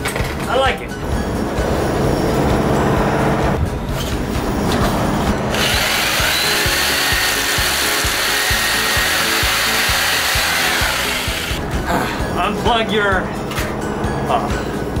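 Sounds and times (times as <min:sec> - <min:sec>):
electric jigsaw cutting pipe: 0:05.5 - 0:11.6.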